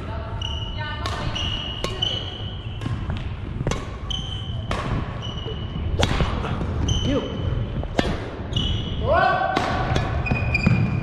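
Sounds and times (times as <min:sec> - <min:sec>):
shoes squeaking on gym floor: 0:00.3 - 0:09.0, 0:10.2 - 0:11.0
racket hitting shuttlecock: 0:01.0 - 0:06.5, 0:07.9 - 0:08.7, 0:09.4 - 0:11.0.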